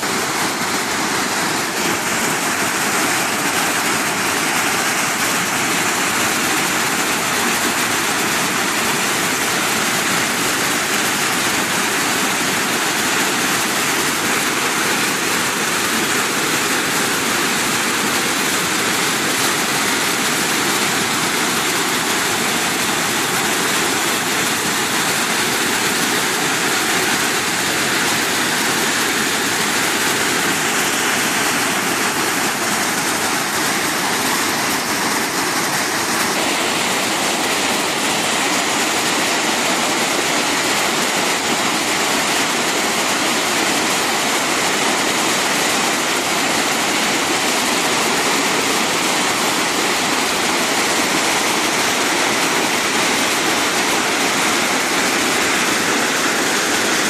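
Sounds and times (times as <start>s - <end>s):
waterfall rushing over boulders: 0.0s - 57.0s.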